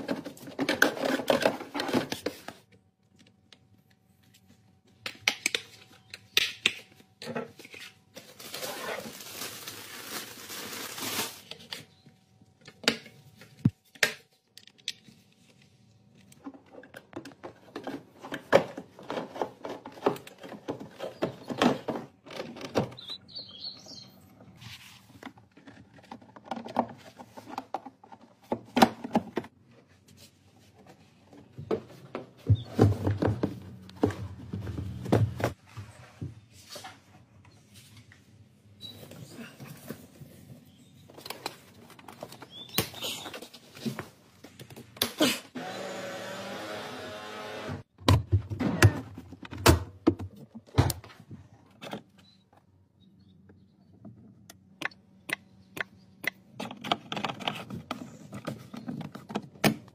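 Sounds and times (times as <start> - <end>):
plastic parts clicking and rustling: 0.0 - 3.7, 12.6 - 23.2, 54.1 - 59.9.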